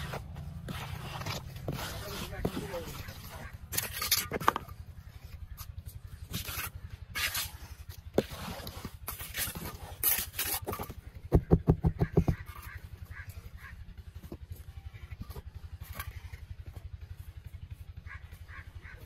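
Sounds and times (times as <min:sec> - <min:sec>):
trowel scraping wet cement: 0:00.0 - 0:11.1.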